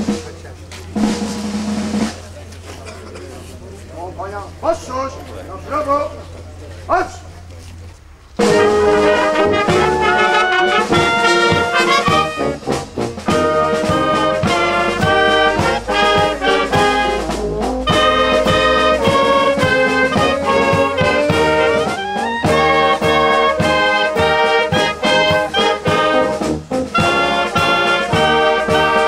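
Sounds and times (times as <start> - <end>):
wind band playing: 0.0 - 0.4, 1.0 - 2.4, 8.4 - 29.0
drum strokes: 0.0 - 2.5, 8.4 - 29.0.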